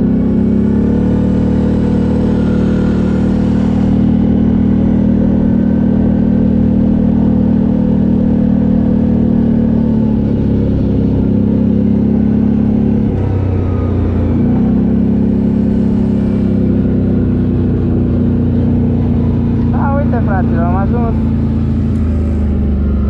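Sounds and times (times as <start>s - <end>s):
atv engine running: 0.0s - 23.0s.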